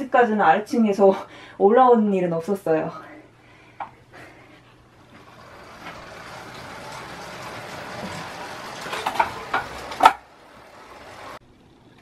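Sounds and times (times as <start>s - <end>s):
sharp clicks and knocks: 5.2s - 10.3s.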